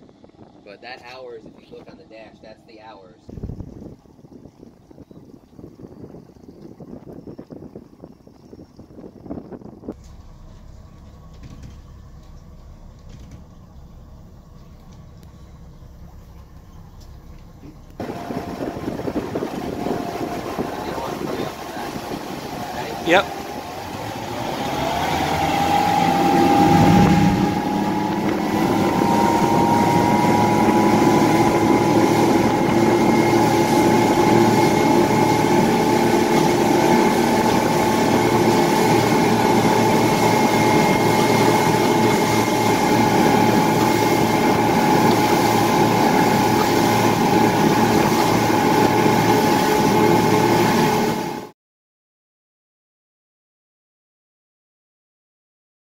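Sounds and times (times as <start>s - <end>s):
outboard motors running: 0.0s - 51.5s.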